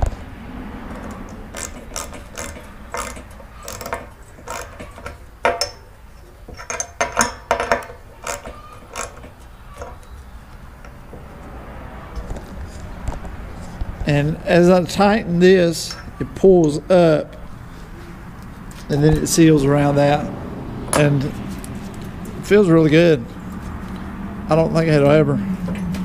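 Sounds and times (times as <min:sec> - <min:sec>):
hand tool clicks and rattles: 0:00.9 - 0:05.8, 0:06.5 - 0:10.1.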